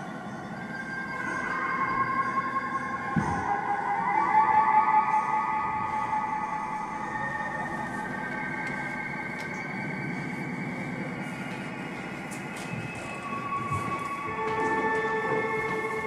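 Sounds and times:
electronic music with high drones: 0.0s - 16.0s.

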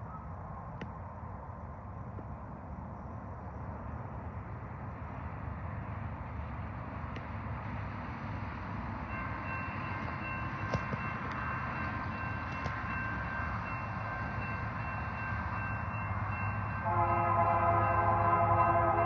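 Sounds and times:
train horn: 16.8s - 19.0s.

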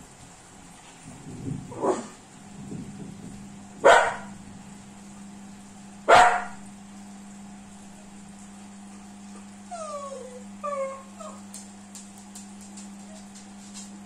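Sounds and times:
steady low hum: 0.0s - 14.0s
dog whining: 9.0s - 11.5s.

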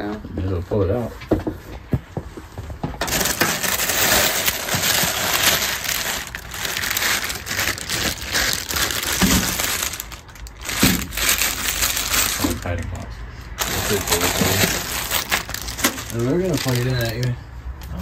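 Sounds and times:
plastic bags crinkling: 3.0s - 17.4s.

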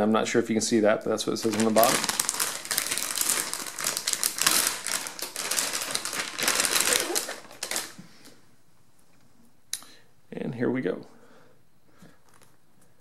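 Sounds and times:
foil pouch crinkling: 1.3s - 8.0s.

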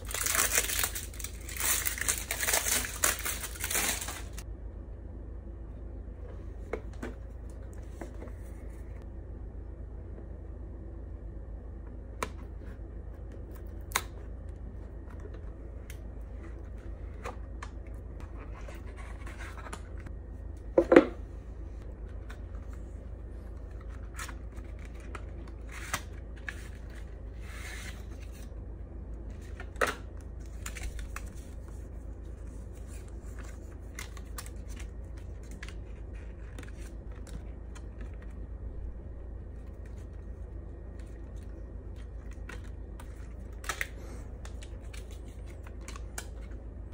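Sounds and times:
packaging rustling and scraping: 0.0s - 4.4s
steady low hum: 0.0s - 46.9s.

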